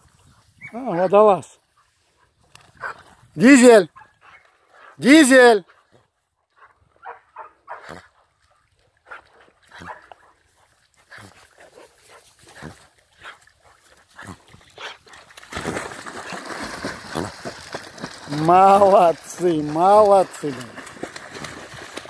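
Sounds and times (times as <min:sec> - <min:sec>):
dog splashing in water: 0:07.1 - 0:22.0.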